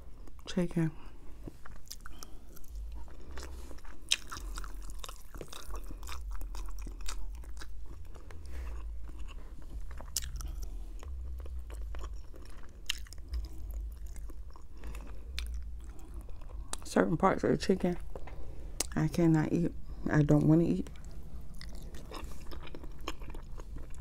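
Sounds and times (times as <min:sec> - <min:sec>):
close chewing with mouth clicks: 0:01.4 - 0:16.9, 0:20.8 - 0:24.0.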